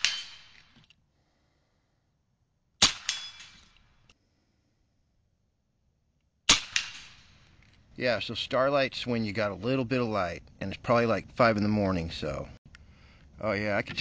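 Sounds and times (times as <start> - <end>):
air rifle shot crack: 0.0 - 0.7, 2.8 - 3.9, 6.5 - 7.5
pellet hitting target: 6.5 - 7.4.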